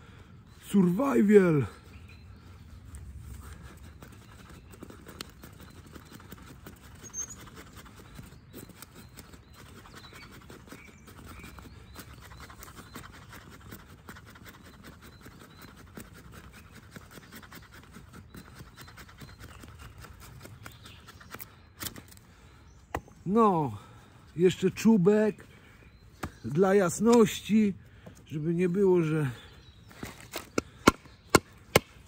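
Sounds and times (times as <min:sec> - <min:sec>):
knife scratching dry wood: 0:03.4 - 0:22.2.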